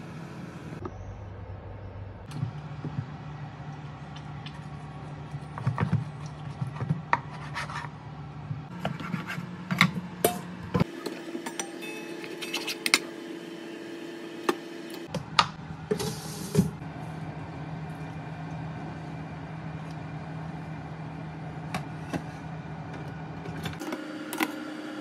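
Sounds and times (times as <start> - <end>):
steady low hum: 0.0 - 10.9.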